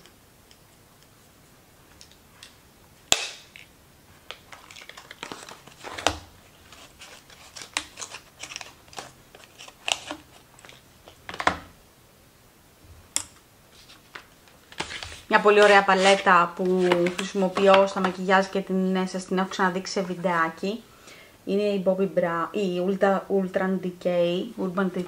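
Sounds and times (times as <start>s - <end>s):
make-up cases clicking and rustling: 4.3s - 11.7s, 14.8s - 18.3s.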